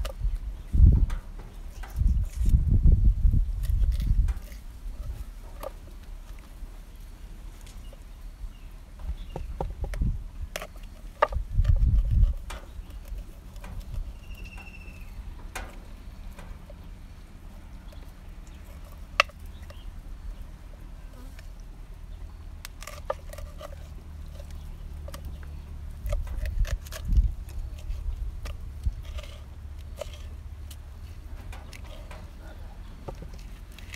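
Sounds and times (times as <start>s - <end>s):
dull low thumps: 0.0s - 1.4s.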